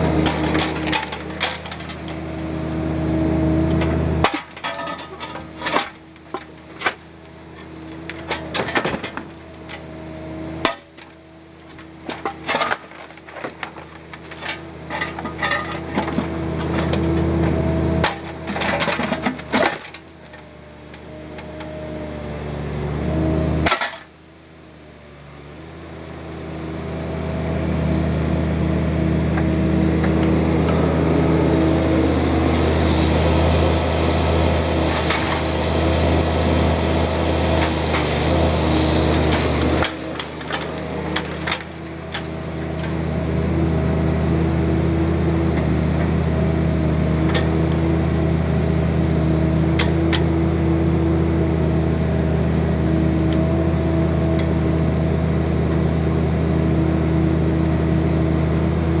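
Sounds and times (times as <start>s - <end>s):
diesel engine running: 0.0s - 59.0s
rock clanking against steel bucket: 3.8s - 7.0s, 11.8s - 20.1s, 23.6s - 24.1s.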